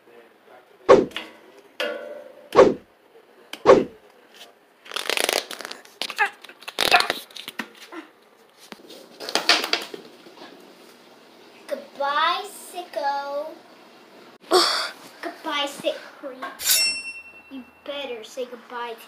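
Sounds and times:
heavy thumps: 0:00.9 - 0:01.2, 0:02.6 - 0:02.8, 0:03.6 - 0:04.0.

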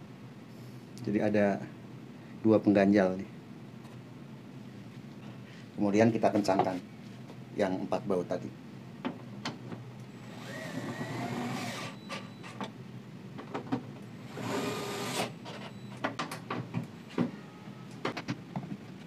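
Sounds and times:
cordless screwdriver whirring: 0:10.3 - 0:12.0, 0:14.3 - 0:15.4.

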